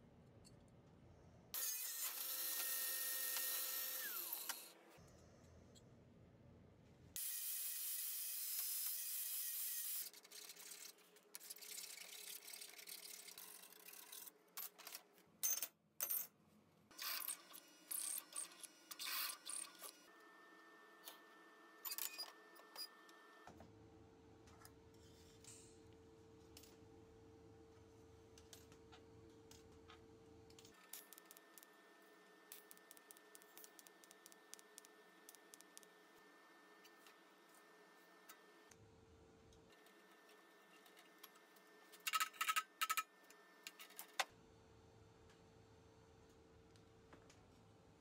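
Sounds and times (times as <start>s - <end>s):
welding hum with thin tone: 6.9s - 14.8s, 16.9s - 48.0s.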